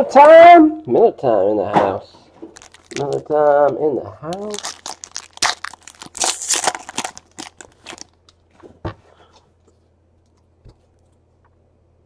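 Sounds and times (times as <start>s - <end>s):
foil wrapper crinkling and tearing: 2.5s - 8.4s.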